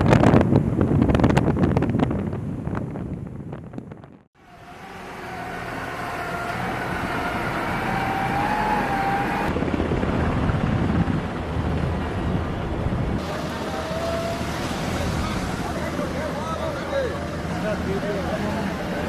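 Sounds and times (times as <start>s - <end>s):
forklift engine running: 4.4s - 10.1s.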